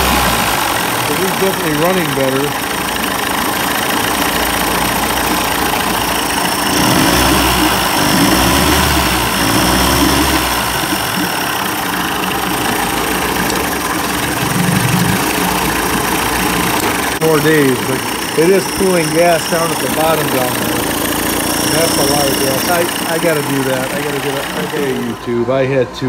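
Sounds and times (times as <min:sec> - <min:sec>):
outboard engine idling: 0:00.0 - 0:26.0.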